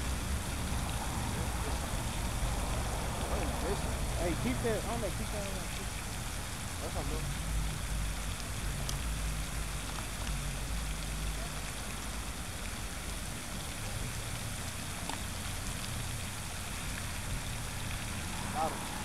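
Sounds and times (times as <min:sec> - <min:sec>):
low rumble: 0:00.0 - 0:13.1
even hiss: 0:00.0 - 0:19.0.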